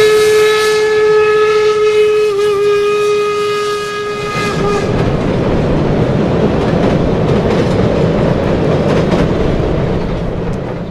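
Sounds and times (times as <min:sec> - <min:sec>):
steam locomotive whistle: 0:00.0 - 0:05.0
train wheels clattering on rails: 0:04.2 - 0:10.9.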